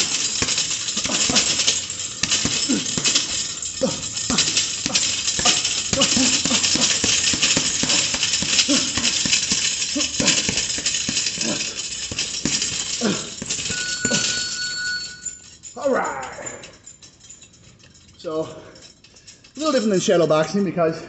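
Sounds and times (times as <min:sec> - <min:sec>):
boxing gloves hitting punching bag: 0:00.0 - 0:14.7
electronic beep: 0:13.7 - 0:15.2.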